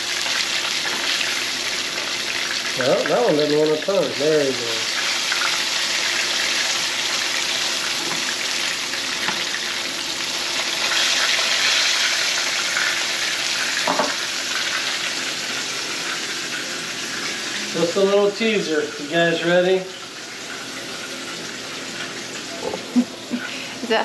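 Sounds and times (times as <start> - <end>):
fish frying in oil: 0.0 - 23.1.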